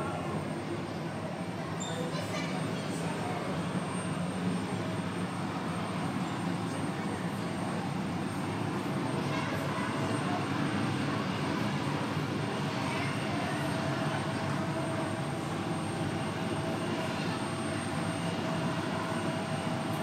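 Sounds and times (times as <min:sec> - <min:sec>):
jet engines idling: 0:00.0 - 0:20.0.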